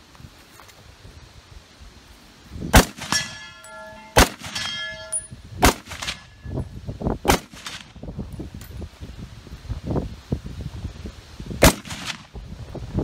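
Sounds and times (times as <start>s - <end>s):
wind rumbling on microphone: 0.0s - 13.0s
rifle shots: 2.7s - 4.8s, 5.6s - 6.3s, 7.3s - 7.9s, 11.6s - 12.3s
bullet clanging on steel gong: 3.0s - 5.4s
gong ringing: 3.2s - 5.3s.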